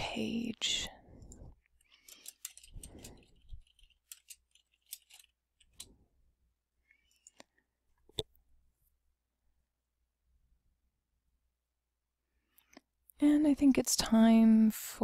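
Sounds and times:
keyboard typing: 2.0 - 5.9.

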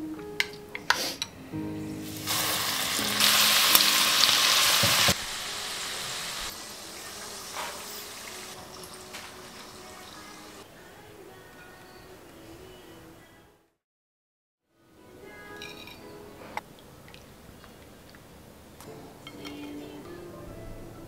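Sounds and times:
okra deep-frying in oil: 2.1 - 10.6.

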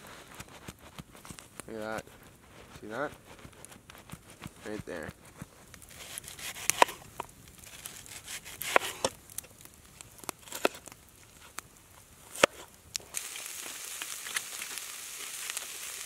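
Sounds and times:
campfire crackling: 0.0 - 16.0
knife slicing onion into pan: 0.3 - 7.0, 7.7 - 9.1.

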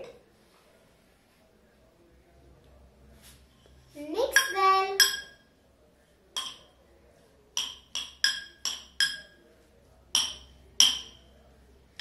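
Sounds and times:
spoon clinking glass bowl: 4.3 - 5.5, 6.4 - 6.8, 7.6 - 9.4, 10.2 - 11.3.

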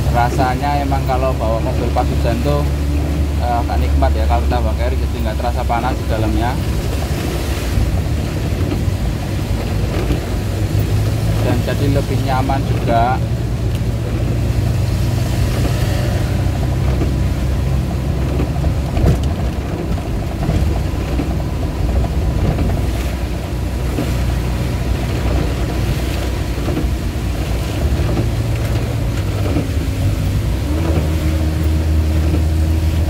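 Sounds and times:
car engine running: 0.0 - 33.0
rain: 0.0 - 33.0
tyres on wet road: 0.0 - 33.0.

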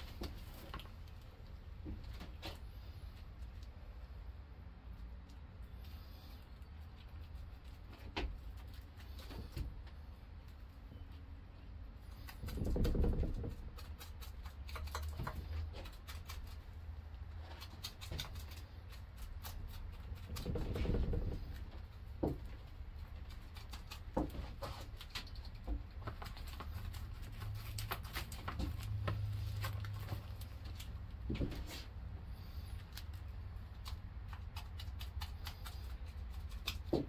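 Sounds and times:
low steady hum: 0.0 - 37.0.

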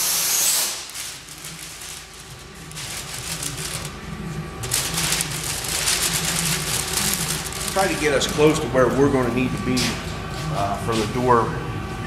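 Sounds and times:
paper sheet rustling and crinkling: 0.7 - 10.0.

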